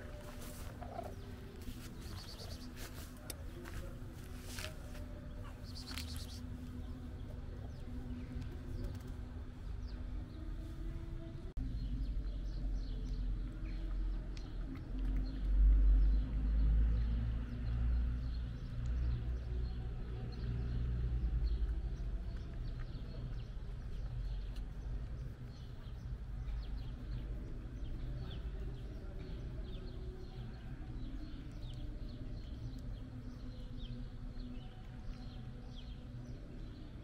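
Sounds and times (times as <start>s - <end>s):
high chirps and clicks: 5.6s - 6.5s.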